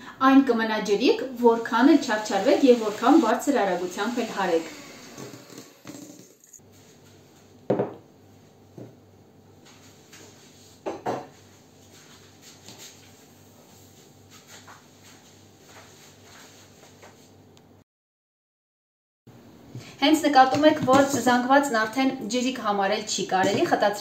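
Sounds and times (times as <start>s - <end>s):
mixer beaters clanking against bowl: 20.4s - 21.4s.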